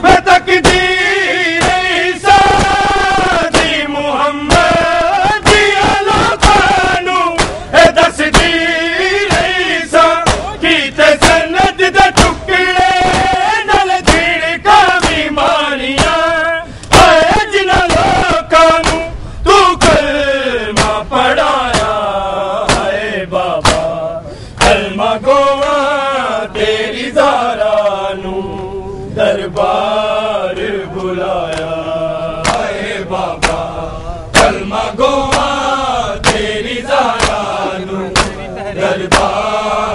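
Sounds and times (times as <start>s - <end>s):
men chanting a lament: 0.0s - 39.9s
people slapping their chests: 0.6s - 3.8s, 4.5s - 19.1s, 19.8s - 20.1s, 20.7s - 21.0s, 21.7s - 23.0s, 23.6s - 24.9s, 25.5s - 25.8s, 30.6s - 31.8s, 32.4s - 33.7s, 34.3s - 39.6s.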